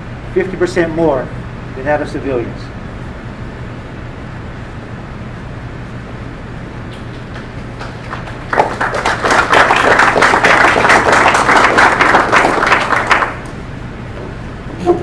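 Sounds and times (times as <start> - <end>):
audience applauding: 7.2 - 13.6.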